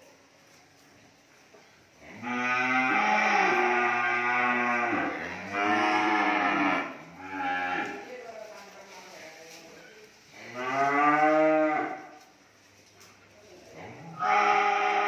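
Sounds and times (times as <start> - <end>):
cattle mooing: 2.2 - 8.0, 14.2 - 15.0.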